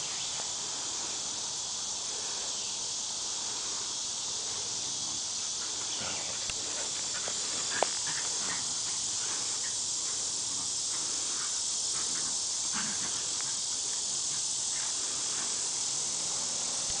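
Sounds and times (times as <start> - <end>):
high-pitched hiss: 0.0 - 17.0
dogs scuffling on grass: 5.5 - 15.8.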